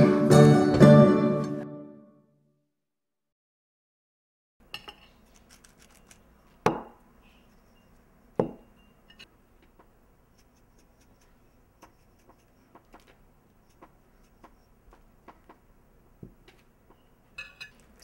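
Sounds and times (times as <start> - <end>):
glass shaker knocking on table: 8.4 - 8.7.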